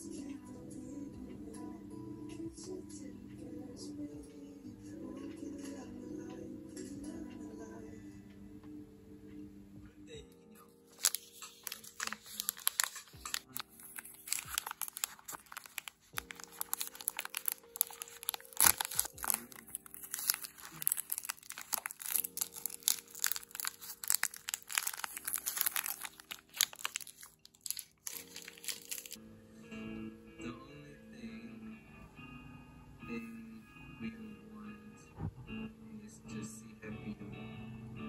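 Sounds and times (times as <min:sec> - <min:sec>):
soft background music: 0:00.0 - 0:38.0
plastic wrapper crinkling and tearing: 0:10.9 - 0:29.2.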